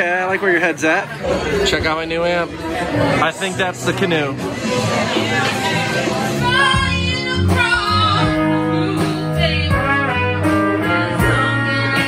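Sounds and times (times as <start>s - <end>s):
acoustic guitar: 0.0s - 12.0s
drums: 1.0s - 12.0s
electric guitar: 4.4s - 12.0s
woman singing: 5.8s - 12.0s.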